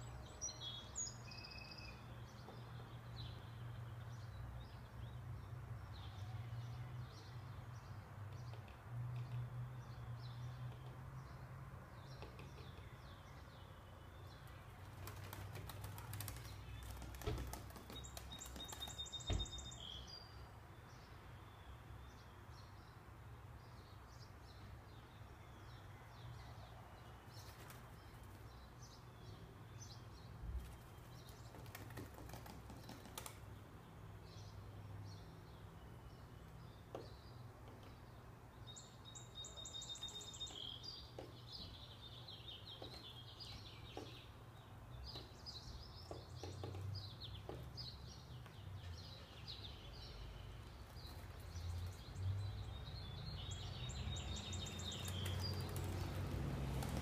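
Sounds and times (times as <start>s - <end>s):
birds chirping: 0.0s - 57.0s
wings fluttering: 14.8s - 19.6s, 27.4s - 28.5s, 30.6s - 33.5s, 54.6s - 57.0s.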